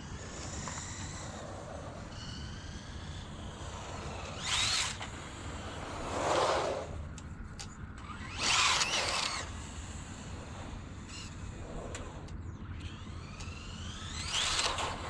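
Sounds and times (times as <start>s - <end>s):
tyre noise on asphalt: 0.0s - 7.2s
electric motor whining: 0.0s - 15.0s.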